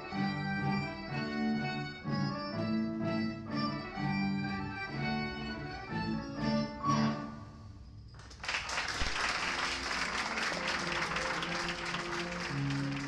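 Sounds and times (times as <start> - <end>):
guitar ensemble playing: 0.0 - 7.3
audience applause: 8.2 - 13.0.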